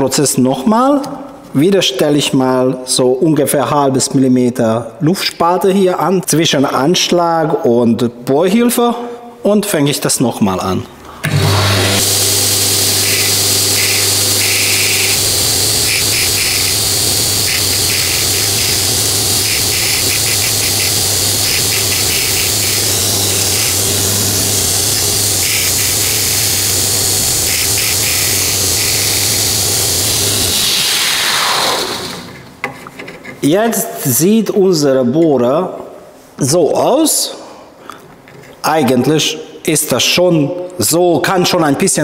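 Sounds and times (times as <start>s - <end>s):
belt grinder running: 11.3s - 32.4s
steel grinding on belt: 11.4s - 31.1s.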